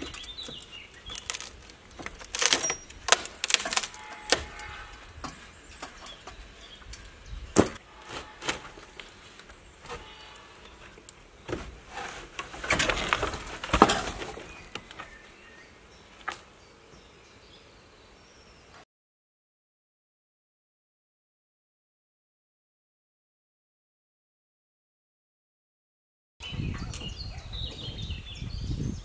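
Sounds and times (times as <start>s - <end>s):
clatter and scraping: 11.5s - 14.6s.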